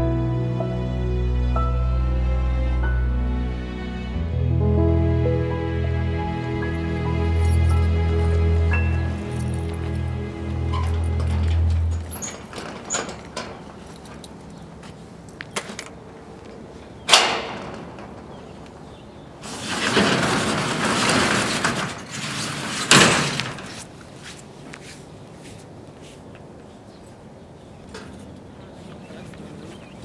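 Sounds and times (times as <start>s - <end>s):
roll-up door rolling: 6.9s - 14.5s, 17.1s - 24.0s
metal door clank: 8.7s - 14.5s, 17.0s - 23.8s
door banging at the top: 17.1s - 18.6s.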